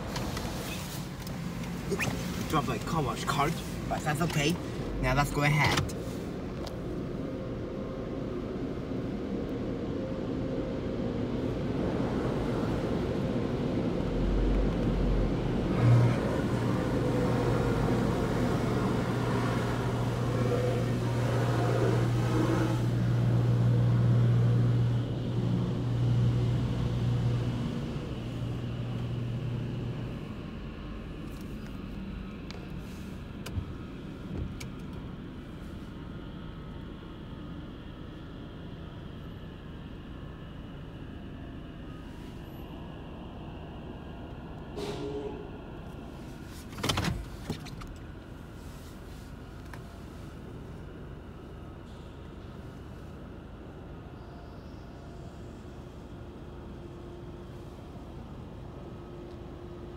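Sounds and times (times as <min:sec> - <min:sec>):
car cabin low rumble: 0:00.0 - 0:44.8.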